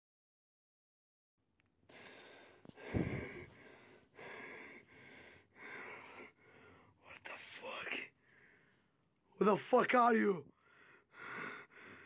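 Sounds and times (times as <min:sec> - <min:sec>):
person gasping for breath: 0:01.9 - 0:06.7.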